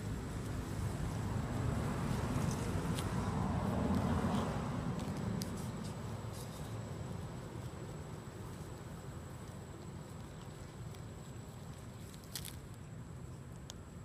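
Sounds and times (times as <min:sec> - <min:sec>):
distant road traffic rumble: 0:00.0 - 0:14.0.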